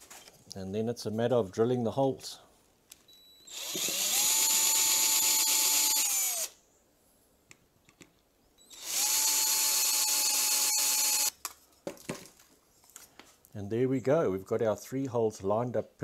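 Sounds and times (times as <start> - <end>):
cordless drill drilling metal: 3.4 - 6.6, 8.6 - 11.4.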